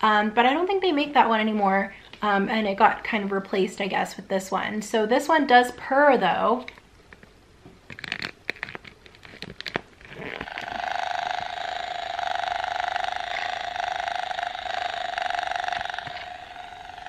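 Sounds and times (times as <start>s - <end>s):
electronic toy purring: 10.1s - 17.0s.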